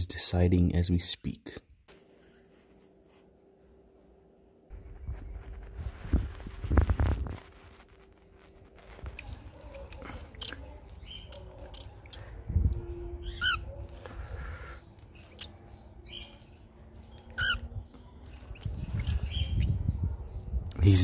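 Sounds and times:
bird chirps: 0:09.1 - 0:20.7
warbled bird calls: 0:13.2 - 0:20.5.

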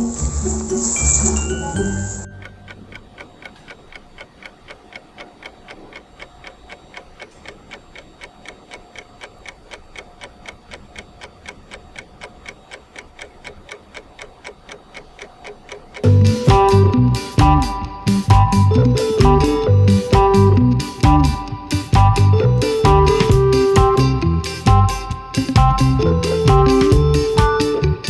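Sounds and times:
faint music: 0:00.0 - 0:04.5, 0:15.6 - 0:28.0
clock-like ticking: 0:00.0 - 0:28.0
loud guitar music: 0:16.0 - 0:28.0.

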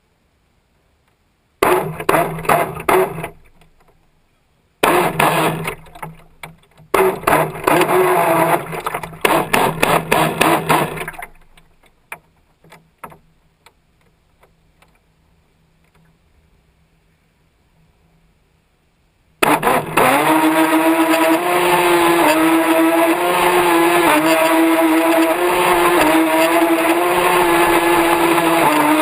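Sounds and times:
model speedboat running fast: 0:04.8 - 0:05.9, 0:07.0 - 0:11.2, 0:19.4 - 0:29.0
hull slapping water: 0:04.8 - 0:11.9
water rushing past: 0:07.0 - 0:11.9
small splashes against hull: 0:08.6 - 0:13.2.

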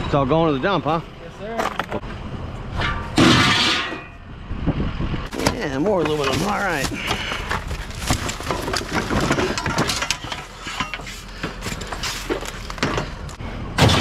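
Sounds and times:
scrap metal clanking and rattling: 0:02.7 - 0:04.2, 0:05.3 - 0:14.0.

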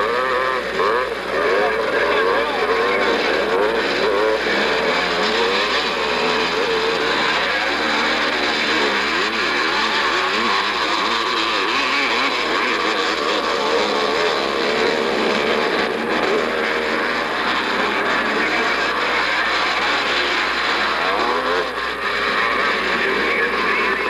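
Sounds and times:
motocross engines revving: 0:00.0 - 0:24.0.

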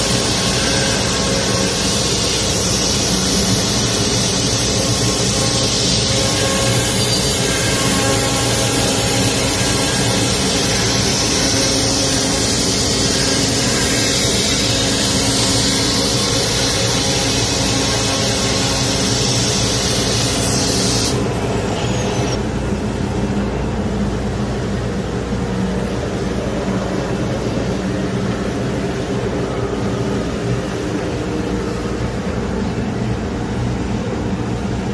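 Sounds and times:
factory machinery drone: 0:00.0 - 0:34.9
router spindle whirring: 0:05.0 - 0:22.4.

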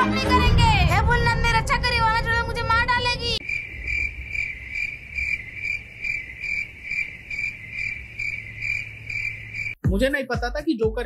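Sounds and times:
cricket chirping: 0:03.3 - 0:09.8.

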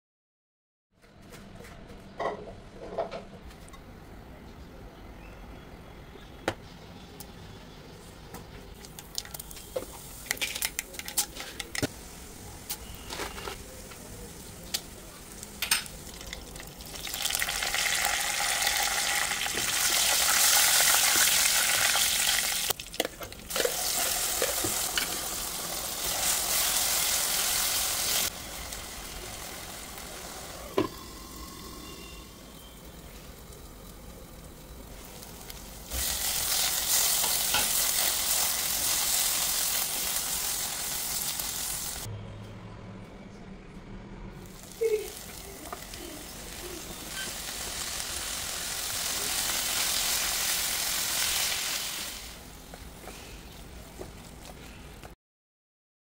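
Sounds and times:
hot oil sizzling in a pan: 0:13.8 - 0:42.1, 0:44.5 - 0:52.5.

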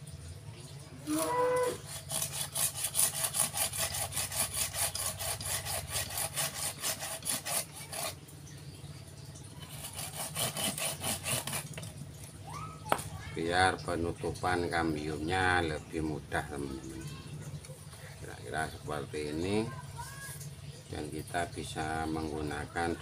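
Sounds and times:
hand saw cutting wood: 0:01.1 - 0:08.2, 0:09.6 - 0:11.9.

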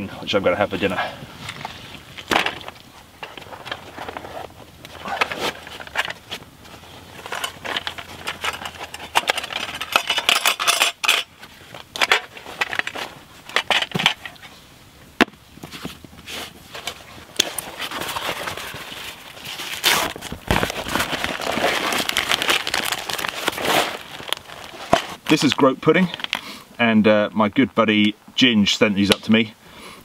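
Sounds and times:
canvas bags rustling: 0:00.6 - 0:10.5, 0:15.7 - 0:26.4.

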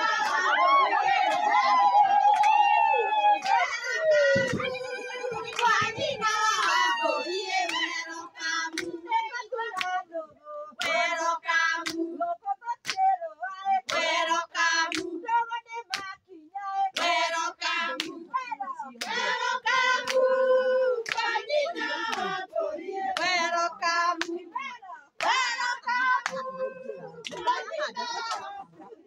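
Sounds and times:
hands clapping: 0:00.0 - 0:08.0, 0:08.7 - 0:09.0, 0:09.8 - 0:10.0, 0:10.8 - 0:11.2, 0:11.8 - 0:12.1, 0:12.8 - 0:13.1, 0:13.8 - 0:14.2, 0:14.8 - 0:15.2, 0:15.9 - 0:16.1, 0:16.9 - 0:18.2, 0:19.0 - 0:20.3, 0:21.0 - 0:22.4, 0:23.2 - 0:24.4, 0:25.2 - 0:28.7
women singing: 0:00.0 - 0:29.0.

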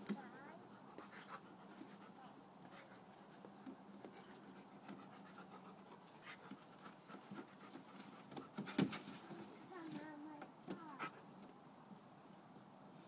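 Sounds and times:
dog panting: 0:00.4 - 0:09.6, 0:10.9 - 0:11.3.

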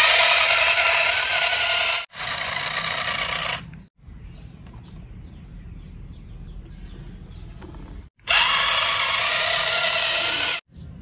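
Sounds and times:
toy truck electric motor whirring: 0:00.0 - 0:03.8, 0:08.2 - 0:10.6.

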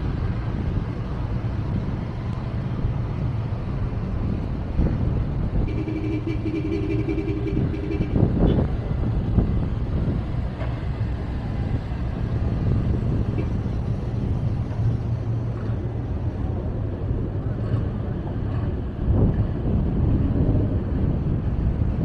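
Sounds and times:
car engines rumbling: 0:00.0 - 0:22.0.

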